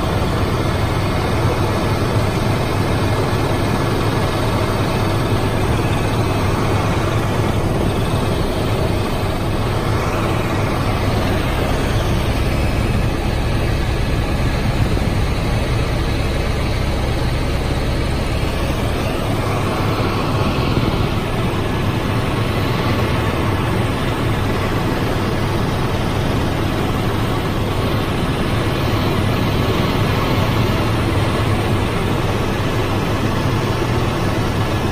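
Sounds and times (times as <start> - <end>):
helicopter cabin engine and rotor: 0.0 - 34.9.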